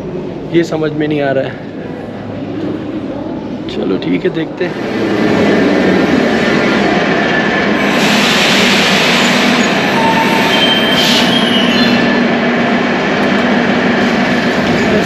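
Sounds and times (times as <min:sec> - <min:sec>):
metro train rumbling: 0:00.0 - 0:15.0
high wheel squeal: 0:07.9 - 0:12.2.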